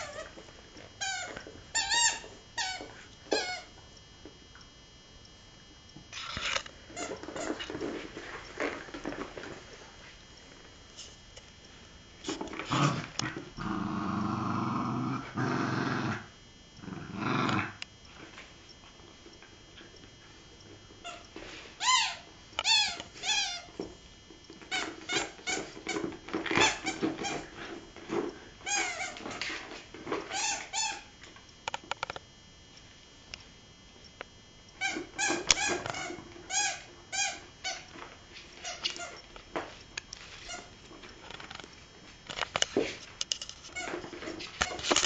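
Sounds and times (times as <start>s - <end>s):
puppy growling: 12.5s - 17.8s.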